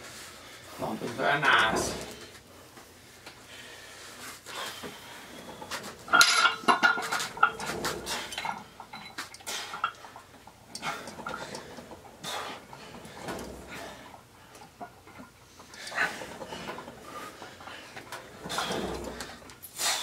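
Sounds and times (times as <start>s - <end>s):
metal clinking of cable machine: 5.4s - 20.0s.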